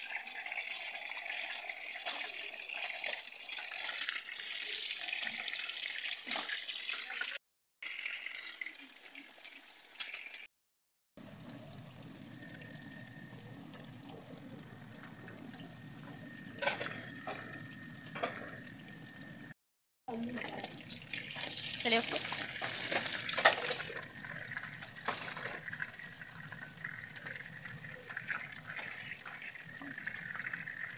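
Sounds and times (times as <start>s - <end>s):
fish sizzling in oil: 0.0s - 10.5s, 20.1s - 30.9s.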